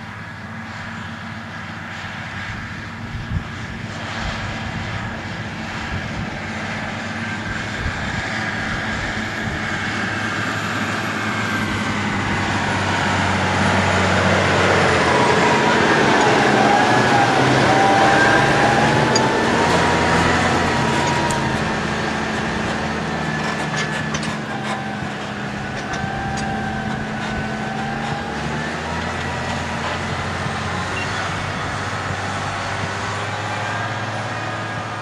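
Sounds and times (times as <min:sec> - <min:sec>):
tractor diesel engine: 0:00.0 - 0:35.0
wavering whine: 0:00.0 - 0:35.0.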